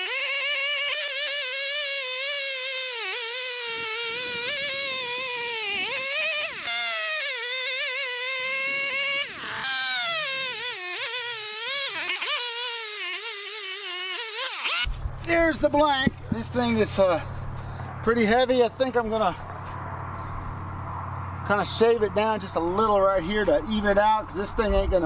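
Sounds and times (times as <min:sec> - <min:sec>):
chainsaw cutting wood: 0:00.0 - 0:15.0.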